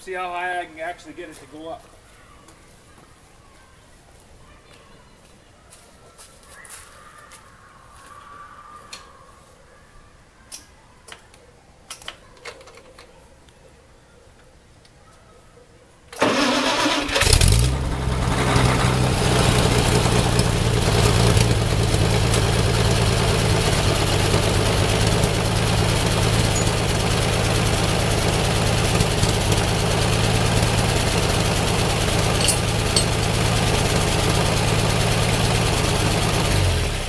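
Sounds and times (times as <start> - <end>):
tractor engine cranking and running: 16.1 - 37.0.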